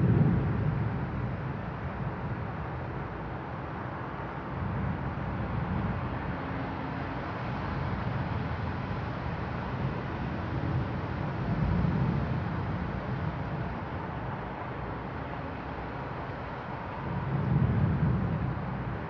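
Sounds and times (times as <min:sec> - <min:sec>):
low thunder rumbles: 0:00.0 - 0:02.9, 0:17.0 - 0:19.0
storm noise: 0:00.0 - 0:06.4, 0:16.8 - 0:19.0.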